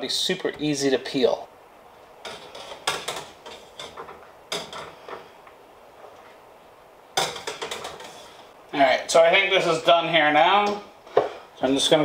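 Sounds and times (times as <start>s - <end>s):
wire strainer scraping saucepan: 7.3s - 8.4s.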